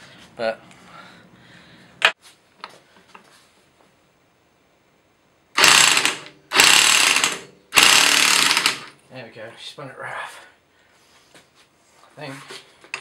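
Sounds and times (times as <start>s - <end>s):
electric impact wrench hammering: 5.5s - 9.0s.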